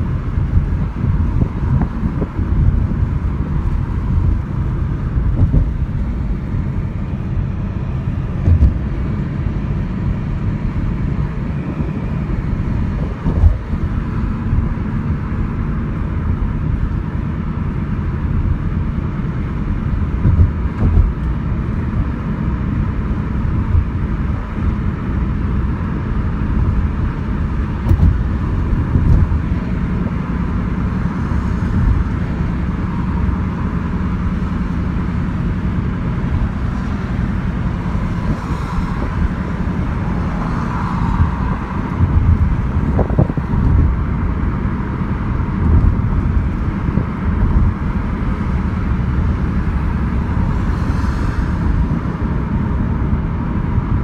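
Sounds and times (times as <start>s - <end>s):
car road noise from inside: 0.0s - 54.0s
low thumps: 5.0s - 6.5s, 8.2s - 9.3s, 12.6s - 14.7s, 20.2s - 21.2s, 27.8s - 29.6s.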